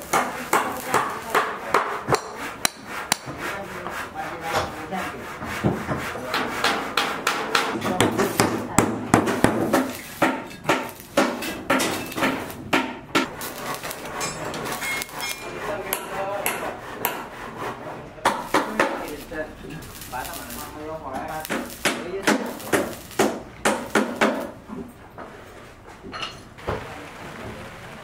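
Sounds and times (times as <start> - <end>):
welding arc crackling hiss: 0.0 - 2.8, 8.0 - 15.9, 18.3 - 24.7.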